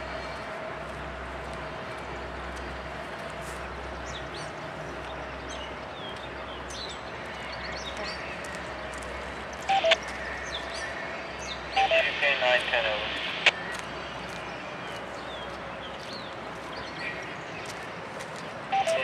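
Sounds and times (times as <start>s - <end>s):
birds chirping: 0.0s - 19.0s
scanner radio burst: 9.7s - 10.0s, 11.8s - 13.6s, 18.7s - 19.0s.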